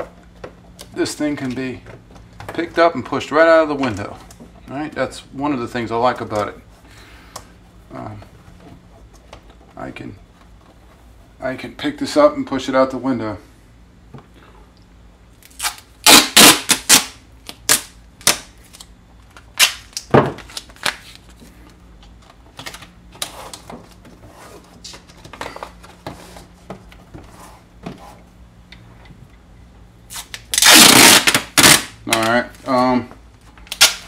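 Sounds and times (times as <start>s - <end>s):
duct tape ripping: 15.4s - 21.3s, 30.1s - 32.4s, 33.6s - 34.0s.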